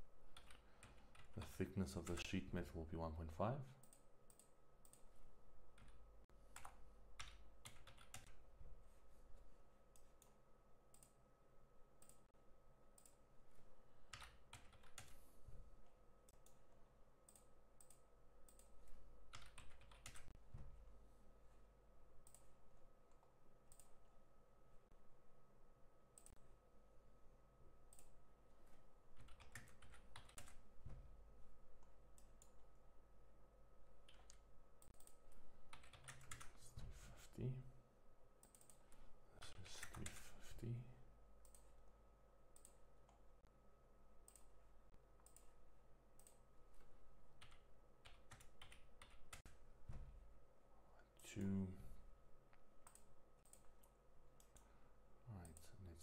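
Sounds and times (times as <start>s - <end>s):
faint steady hum: 0.0s - 56.0s
keyboard typing: 5.7s - 8.4s, 14.1s - 15.2s, 16.3s - 20.4s, 29.1s - 31.0s, 34.0s - 36.6s, 45.2s - 49.6s.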